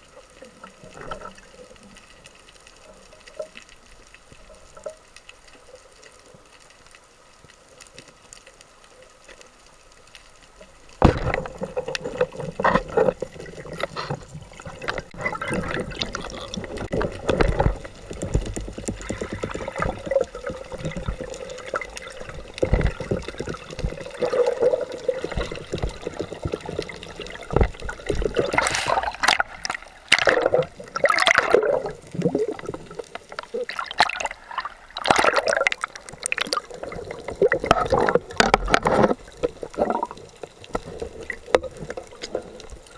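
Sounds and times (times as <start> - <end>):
bubbling and rushing water: 0.0 - 8.2, 9.1 - 42.9
loud knock underwater: 11.0 - 11.4.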